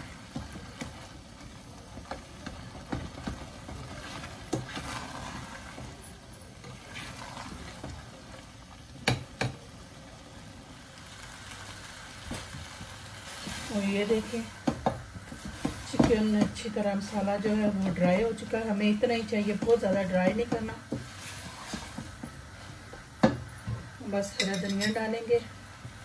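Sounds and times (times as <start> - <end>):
spatula scraping a saucepan: 3.7 - 6.0, 6.6 - 8.0, 19.4 - 22.4, 24.2 - 25.1
spatula knocking on pan: 9.0 - 9.6, 14.6 - 16.7, 19.5 - 21.1, 22.0 - 25.0.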